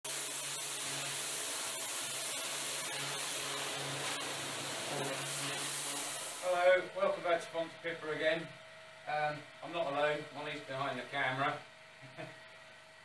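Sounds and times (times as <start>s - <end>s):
pressure washer spray hissing: 0.0s - 6.7s.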